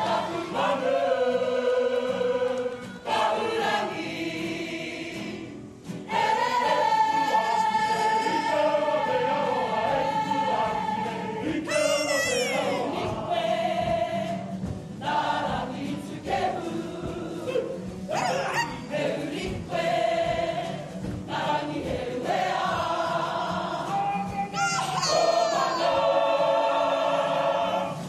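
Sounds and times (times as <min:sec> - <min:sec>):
group singing long notes: 0:00.0 - 0:28.0
high sliding cry: 0:11.6 - 0:13.0, 0:18.1 - 0:18.9, 0:24.6 - 0:26.0.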